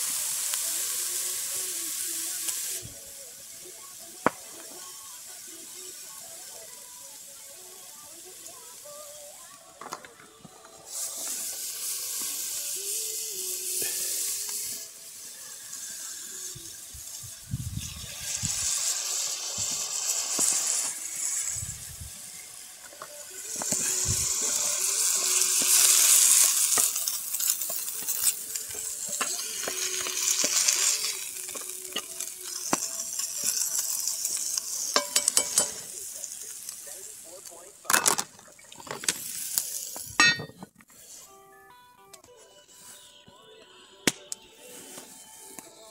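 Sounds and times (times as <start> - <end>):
food sizzling in a pot: 0.0 - 41.3.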